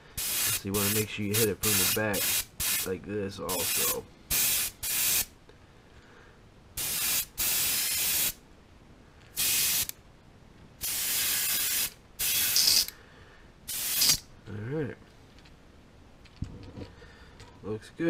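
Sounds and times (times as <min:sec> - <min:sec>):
airbrush spraying hiss: 0:00.0 - 0:02.9, 0:03.5 - 0:05.3, 0:06.8 - 0:08.4, 0:09.4 - 0:09.9, 0:10.8 - 0:13.0, 0:13.7 - 0:14.2.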